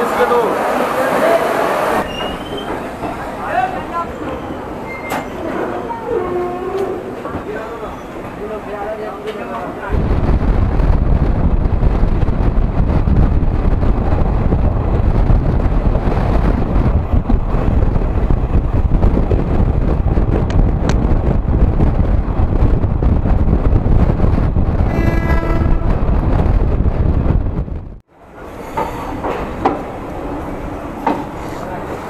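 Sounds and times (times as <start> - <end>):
moving train rumble: 0.0 - 32.0
wind on microphone: 9.9 - 28.0.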